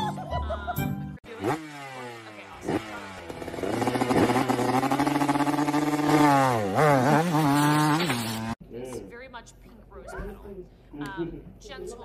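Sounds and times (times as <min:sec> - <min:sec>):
motor scooter engine revving: 0:01.2 - 0:08.6.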